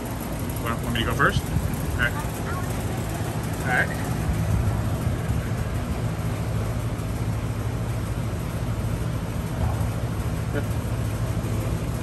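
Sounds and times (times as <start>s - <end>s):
air-conditioning units humming: 0.0s - 12.0s.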